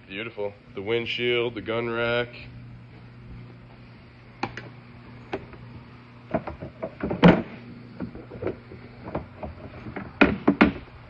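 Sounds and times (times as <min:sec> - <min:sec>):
steady low hum: 0:00.0 - 0:11.0
clicks and knocks on plastic: 0:06.3 - 0:10.8.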